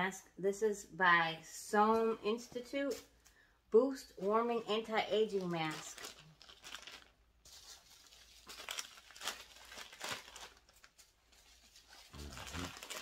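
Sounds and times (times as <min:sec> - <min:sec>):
packaging crinkling and rustling: 0:05.2 - 0:13.0.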